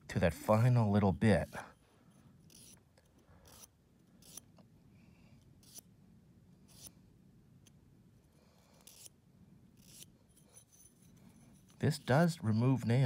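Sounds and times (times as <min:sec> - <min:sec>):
nail file rasping on claw: 0:02.3 - 0:04.6, 0:05.4 - 0:05.9, 0:06.6 - 0:07.0, 0:08.6 - 0:12.0.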